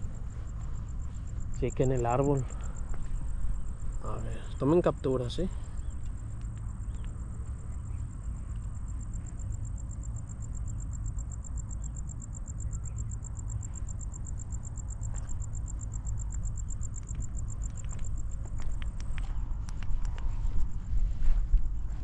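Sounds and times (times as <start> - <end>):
cricket chirping: 0.0 - 22.0.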